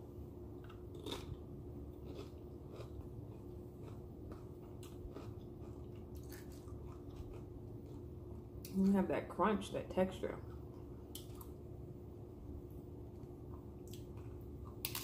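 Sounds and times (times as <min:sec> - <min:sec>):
chewing crisp tortilla: 0:00.6 - 0:08.7.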